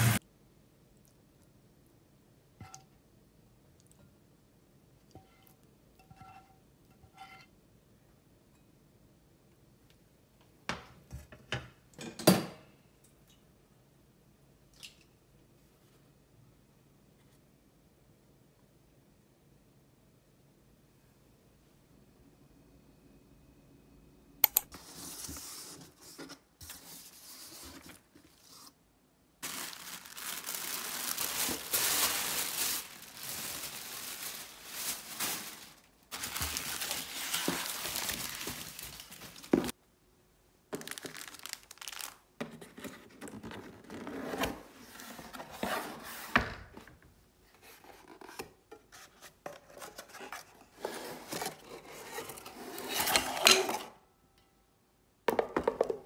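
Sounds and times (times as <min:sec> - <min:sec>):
paper packaging rustling and tearing: 0:29.4 - 0:39.7, 0:40.8 - 0:42.2.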